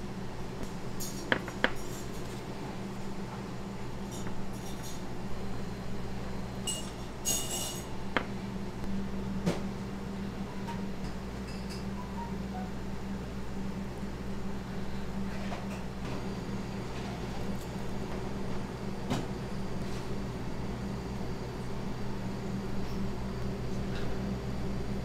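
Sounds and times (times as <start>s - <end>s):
kitchen equipment humming: 0.0s - 25.0s
kitchenware clinking: 6.7s - 7.9s.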